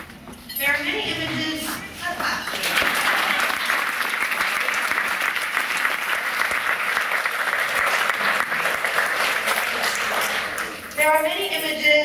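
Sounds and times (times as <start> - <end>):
audience applauding: 2.5 - 10.8.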